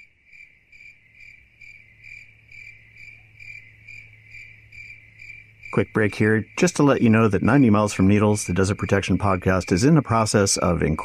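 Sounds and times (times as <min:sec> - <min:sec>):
cricket chirping: 0:00.0 - 0:11.0
faint low hum: 0:01.6 - 0:11.0.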